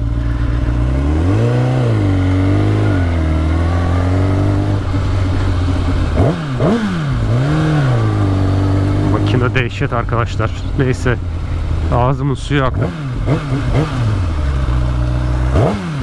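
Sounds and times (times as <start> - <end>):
sharp throttle blips: 0.0 - 11.4
motorcycle engine revving: 0.0 - 16.0.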